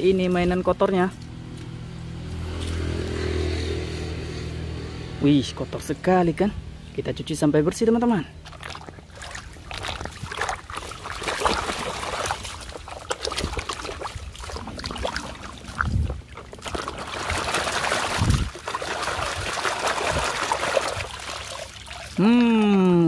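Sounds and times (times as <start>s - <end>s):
water splashing in a plastic basin: 8.3s - 23.0s.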